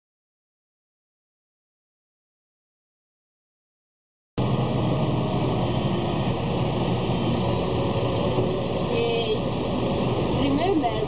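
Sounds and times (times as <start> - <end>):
low engine hum: 4.4 - 11.0
motor traffic noise: 4.4 - 11.0.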